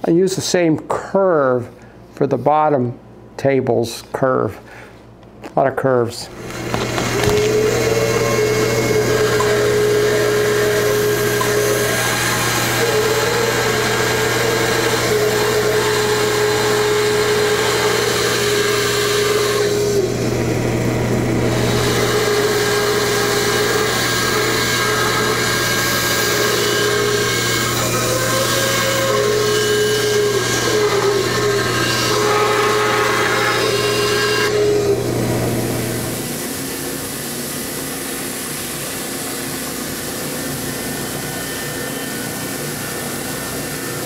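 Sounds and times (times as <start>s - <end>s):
bandsaw cutting wood: 6.3s - 37.3s.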